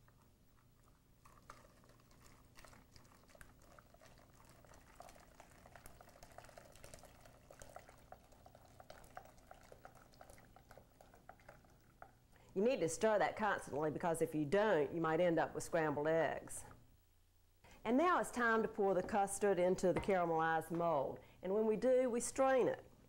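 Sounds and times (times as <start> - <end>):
wooden spoon stirring: 0.0 - 12.2
milk pouring into a glass bowl: 0.1 - 12.4.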